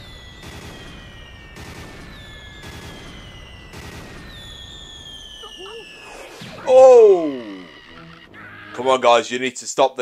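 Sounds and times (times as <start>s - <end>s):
falling whistle: 0.0s - 8.8s
cartoon cannon shots: 0.2s - 7.9s.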